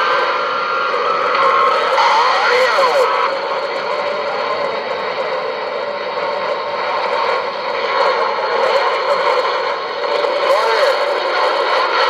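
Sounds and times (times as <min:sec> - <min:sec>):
garbled warbling radio signals: 0:01.4 - 0:03.8, 0:10.4 - 0:11.6
radio static hiss: 0:01.4 - 0:05.8, 0:08.1 - 0:12.0.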